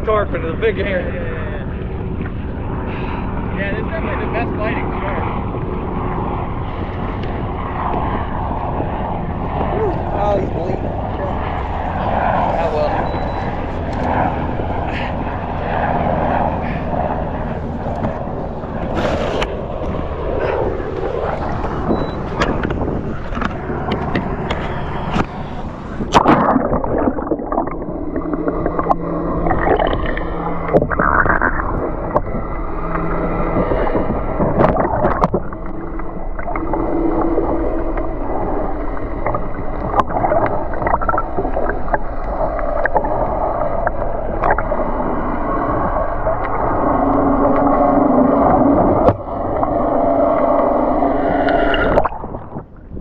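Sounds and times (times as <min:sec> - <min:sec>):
muffled underwater water swishing: 0:00.0 - 0:53.0
wind on microphone: 0:00.0 - 0:53.0
water sloshing around kayak: 0:11.1 - 0:52.8.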